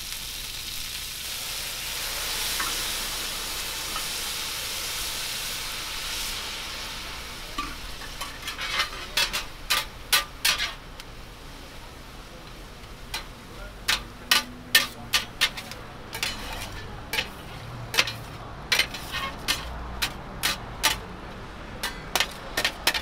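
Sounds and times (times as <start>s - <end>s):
metal scraper on steel griddle: 7.6s - 10.8s, 13.9s - 21.1s, 21.8s - 23.0s.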